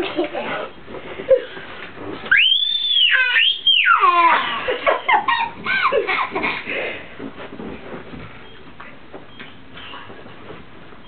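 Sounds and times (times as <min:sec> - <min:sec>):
children screaming: 0:02.3 - 0:04.7.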